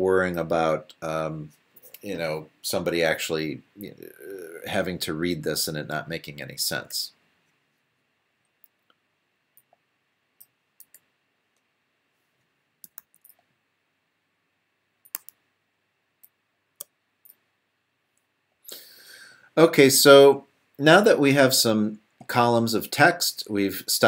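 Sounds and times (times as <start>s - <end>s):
mouse and keyboard clicks: 12.8s - 13.4s, 15.0s - 15.4s.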